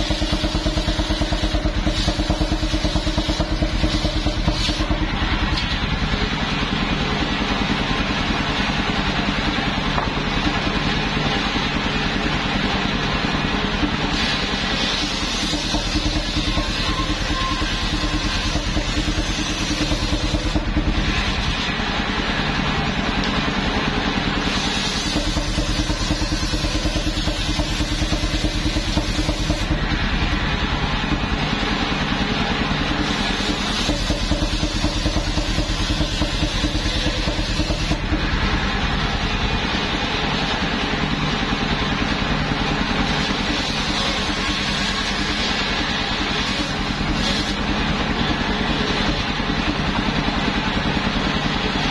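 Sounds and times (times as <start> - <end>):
sawmill engine running: 0.0 - 51.9
saw blade cutting log: 14.1 - 21.7, 33.0 - 38.0, 43.2 - 47.6.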